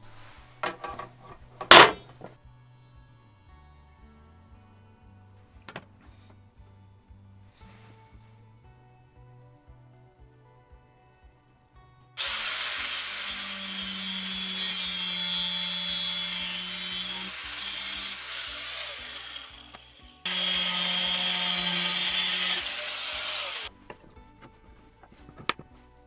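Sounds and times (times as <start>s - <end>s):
angle grinder cutting metal rod: 12.2s - 23.7s.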